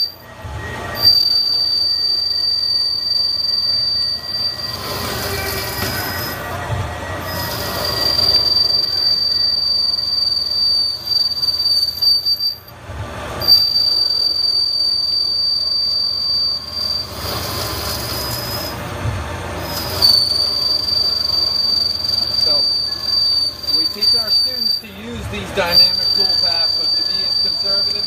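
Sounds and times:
lathe cutting with high squeal: 0.0s - 28.0s.

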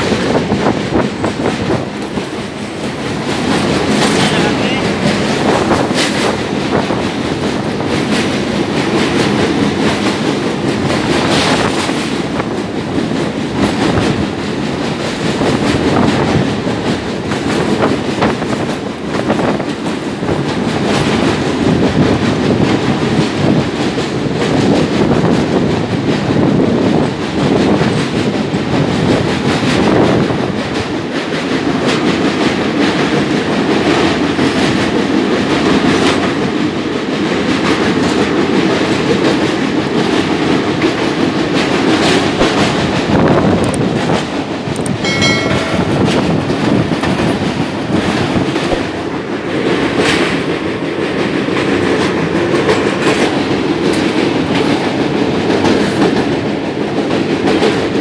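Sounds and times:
train rumbling over bridge: 0.0s - 58.0s
wheels clattering on rails: 0.0s - 58.0s.

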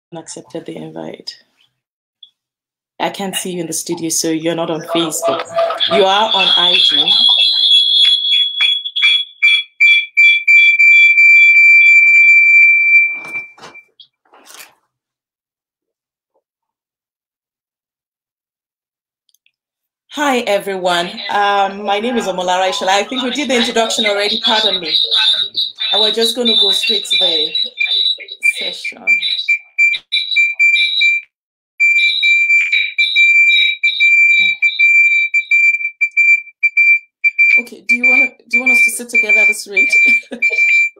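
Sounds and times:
high-pitched feedback squeal: 4.8s - 9.2s, 21.0s - 31.2s
high-pitched electronic whistle: 4.8s - 13.9s, 22.0s - 31.2s, 31.8s - 40.9s.

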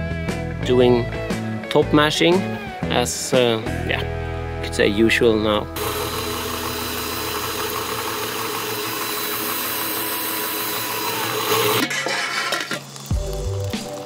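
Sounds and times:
grain mill crushing malt: 5.8s - 14.0s
background music with low thumps: 13.1s - 14.0s.

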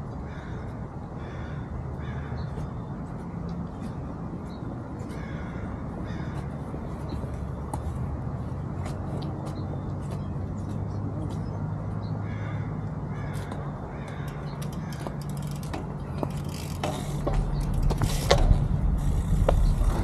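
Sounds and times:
bird cawing: 0.2s - 2.9s, 5.1s - 6.8s, 12.2s - 18.3s
sharp clicks and knocks: 13.4s - 20.0s
steady low hum: 15.2s - 20.0s
wind rumble on microphone: 17.0s - 20.0s.

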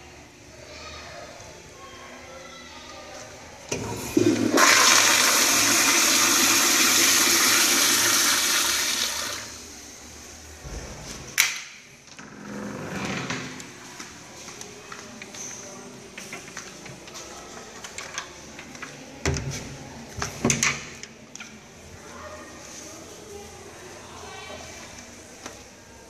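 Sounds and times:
toilet water rushing: 3.7s - 9.7s.

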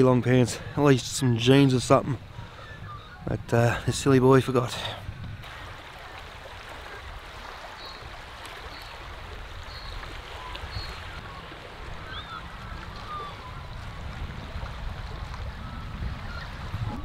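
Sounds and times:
small waves lapping: 0.0s - 17.0s
wind on microphone: 0.0s - 17.0s
faint bird chirps: 12.0s - 13.7s.

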